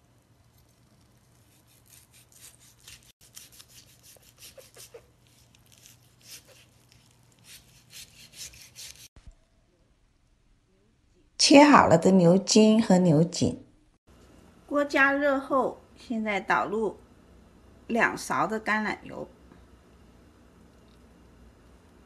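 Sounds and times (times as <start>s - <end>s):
knife slicing on cutting board: 0.6s - 9.1s.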